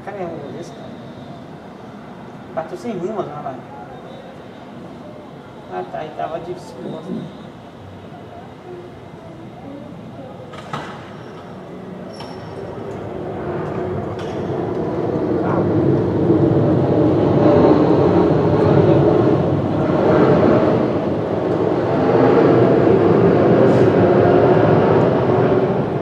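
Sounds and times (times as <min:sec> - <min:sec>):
jet engine roar: 0:08.9 - 0:26.0.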